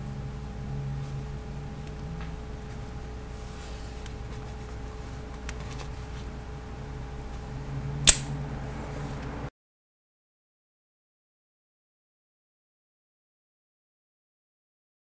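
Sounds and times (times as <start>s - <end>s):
steady low hum: 0.0s - 9.5s
pistol slide metallic click: 8.1s - 8.3s.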